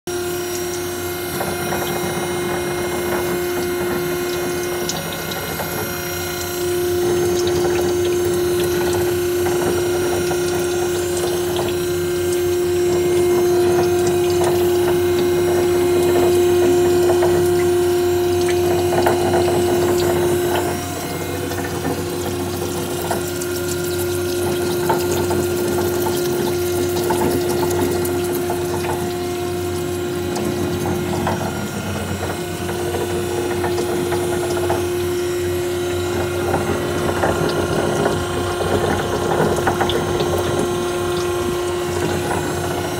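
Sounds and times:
machine gear drive humming: 0.1s - 42.9s.

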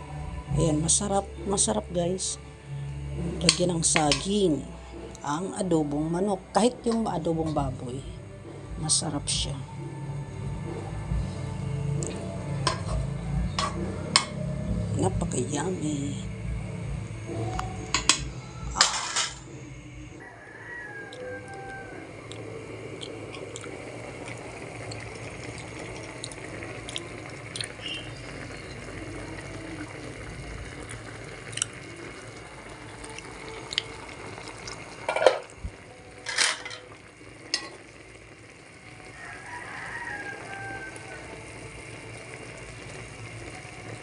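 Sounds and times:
pot simmering and bubbling: 0.0s - 44.0s
metal pot lid clinking: 12.7s - 13.0s, 13.6s - 14.4s, 17.9s - 18.2s, 18.8s - 19.4s, 35.0s - 35.5s, 36.2s - 36.9s, 37.5s - 37.8s.

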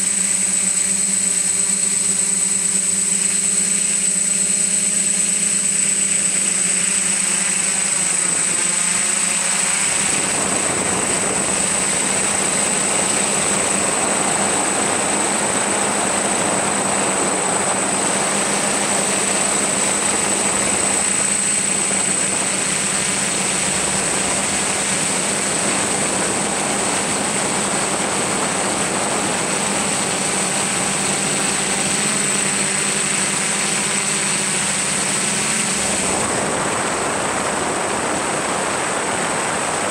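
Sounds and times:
drone motors whining: 0.0s - 39.9s
rushing wind noise: 9.6s - 32.3s, 34.8s - 39.9s.

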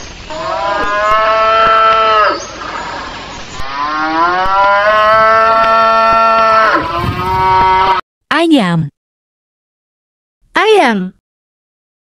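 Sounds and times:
cow mooing: 0.3s - 2.4s, 3.7s - 8.0s.

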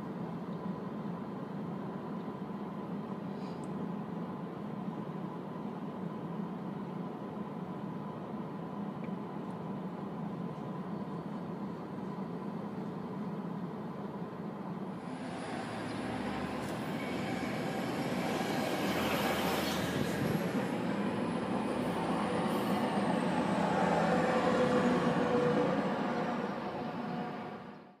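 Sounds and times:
commuter train rushing past: 14.0s - 28.0s
freight train rumbling past: 14.8s - 28.0s.

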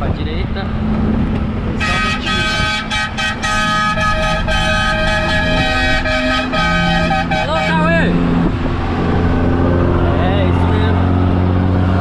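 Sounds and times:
truck engine drone: 0.0s - 12.0s
truck air horn toots: 1.8s - 8.2s.

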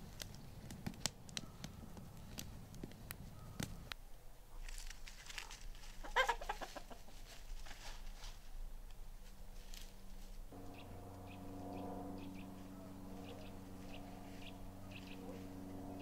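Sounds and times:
chicken clucking: 6.0s - 7.4s.

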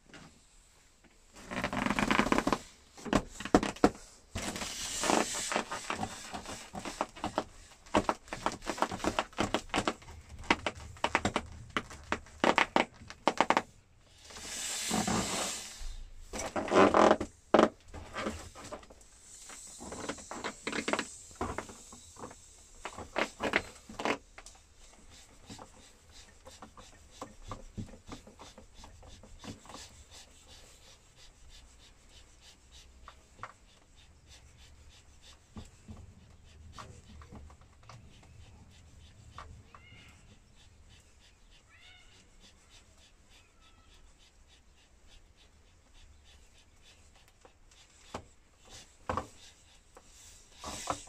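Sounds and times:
inflatable lilo squeaking and rubbing: 1.4s - 3.8s, 4.4s - 18.8s, 37.9s - 45.5s.

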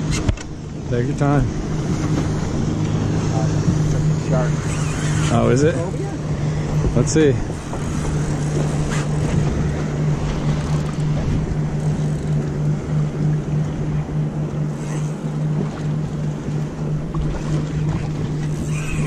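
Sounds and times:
boat engine idling: 0.0s - 19.0s
water around hull: 0.0s - 19.0s
wind on microphone: 1.4s - 12.2s.

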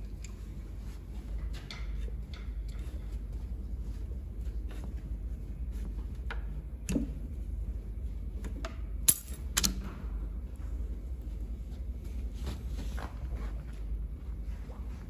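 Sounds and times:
metal tools clicking and clinking: 9.1s - 9.7s.

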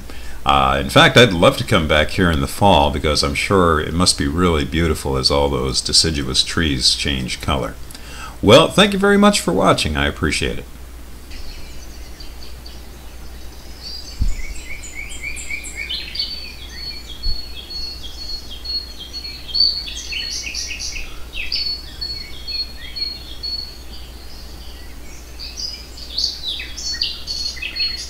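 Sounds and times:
small birds chirping: 0.0s - 28.0s
brief low thumps: 14.1s - 14.8s, 17.2s - 17.5s.

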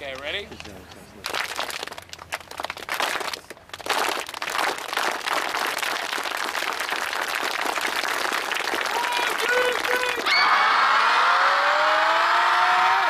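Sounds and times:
kids clapping in unison: 1.2s - 10.4s.

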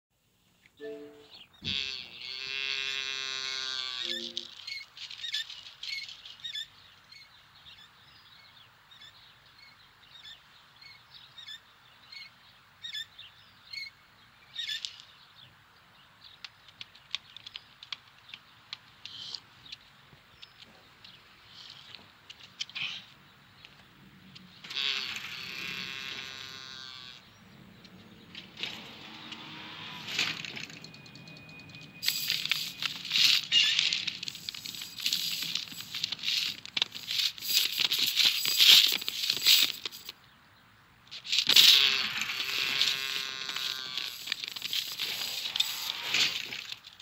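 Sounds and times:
faint outdoor hiss: 0.2s - 47.0s
loud buzzy tone: 0.8s - 4.5s
short stepped tones: 4.0s - 4.6s
bird chirps: 4.0s - 15.4s, 29.2s - 40.7s.

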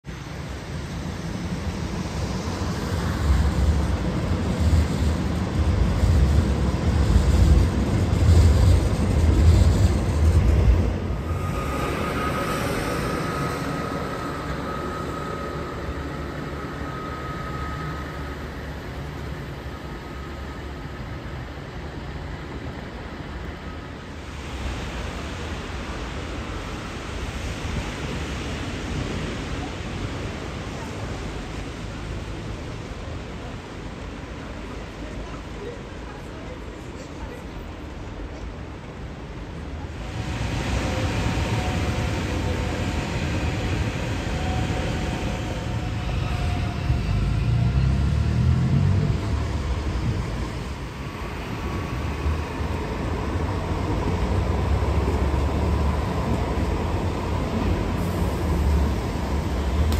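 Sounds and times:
trams rumbling on tracks: 0.0s - 59.9s
thin steady whine: 9.6s - 24.7s.

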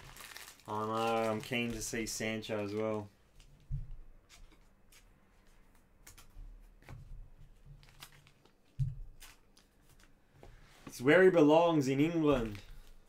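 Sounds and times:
trading cards clicking and rustling: 12.0s - 13.0s.

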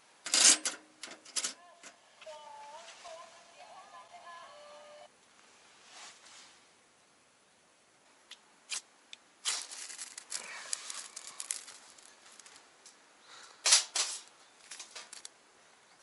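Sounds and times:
crackly scraping and rustling: 9.4s - 13.0s, 13.7s - 15.4s.

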